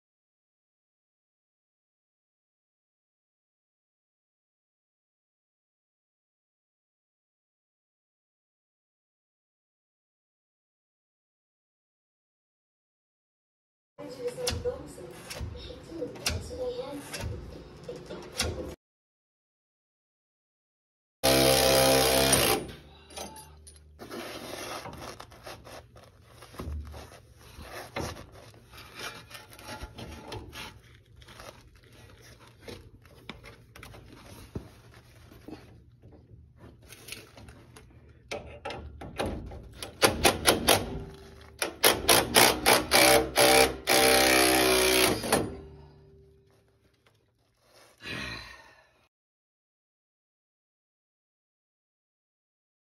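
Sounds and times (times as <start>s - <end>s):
impact driver hammering: 21.2s - 22.8s, 39.1s - 45.7s.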